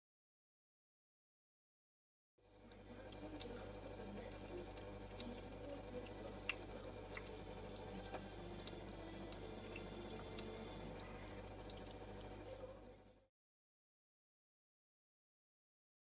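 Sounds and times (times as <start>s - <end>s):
low steady hum: 2.4s - 13.3s
cat lapping water: 2.6s - 12.9s
water trickling into bowl: 2.6s - 13.0s.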